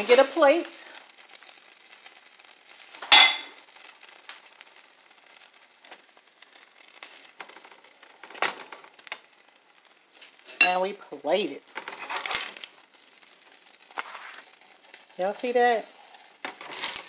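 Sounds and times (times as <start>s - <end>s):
ceramic plate clinking: 3.1s - 3.5s
dishware clatter: 3.1s - 3.5s.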